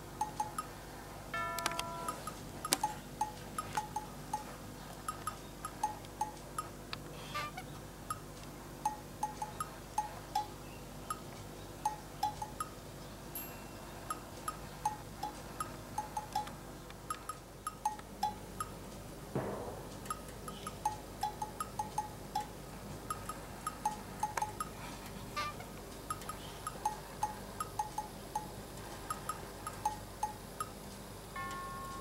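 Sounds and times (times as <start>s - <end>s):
steady low hum: 0.0s - 32.0s
cheerful chime music: 1.4s - 2.4s, 31.4s - 32.0s.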